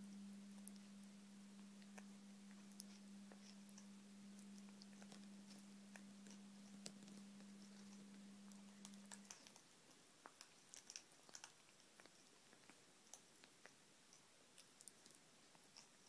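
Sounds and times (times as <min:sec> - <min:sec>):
low hum: 0:00.0 - 0:09.3.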